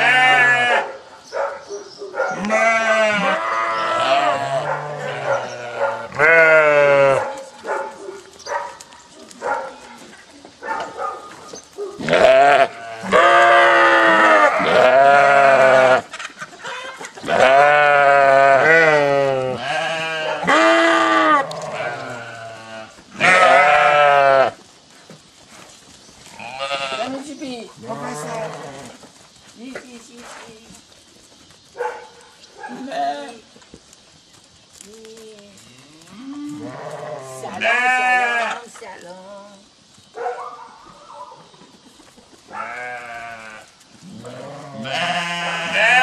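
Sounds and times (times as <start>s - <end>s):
sheep bleating: 0.0s - 0.8s, 2.4s - 7.2s, 12.0s - 16.1s, 17.2s - 24.6s, 26.3s - 27.2s, 36.1s - 38.7s, 42.5s - 46.0s.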